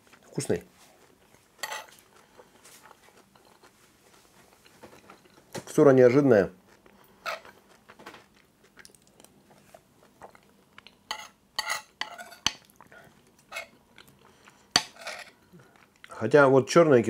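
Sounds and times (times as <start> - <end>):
spoon scraping ceramic bowl: 1.6 - 2.0, 7.2 - 7.5, 11.1 - 12.6, 13.5 - 13.8, 14.8 - 15.4.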